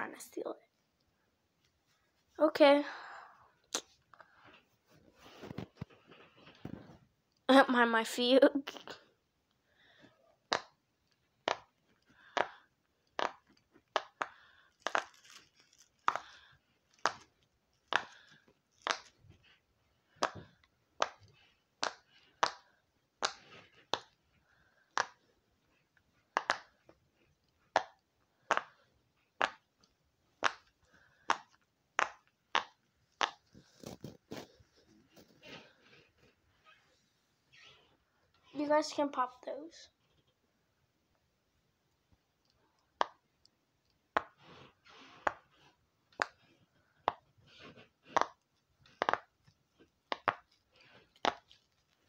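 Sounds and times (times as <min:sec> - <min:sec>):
silicone fidget toy popping: 0:10.4 - 0:10.8, 0:11.4 - 0:17.3, 0:17.9 - 0:24.2, 0:26.2 - 0:26.9, 0:27.6 - 0:28.8, 0:29.4 - 0:34.5, 0:46.2 - 0:51.5.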